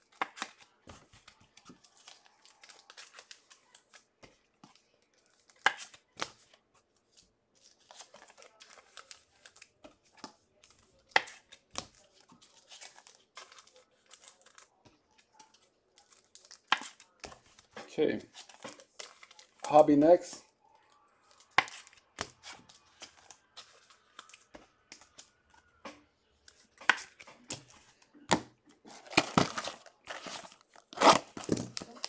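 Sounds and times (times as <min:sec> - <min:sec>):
foil wrappers tearing and crinkling: 0:18.3 - 0:19.9, 0:28.9 - 0:32.0.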